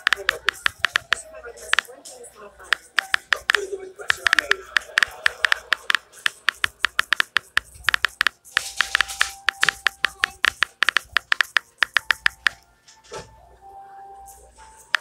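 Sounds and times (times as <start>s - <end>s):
taps on smartphone keyboard: 0.0s - 1.9s, 2.7s - 12.6s.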